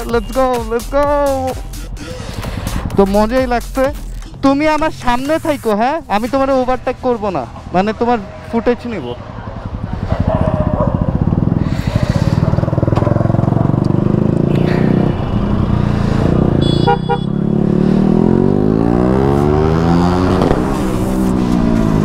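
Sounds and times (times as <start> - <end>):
motorcycle engine revving: 2.1 - 22.0
horn beeps: 16.5 - 17.5.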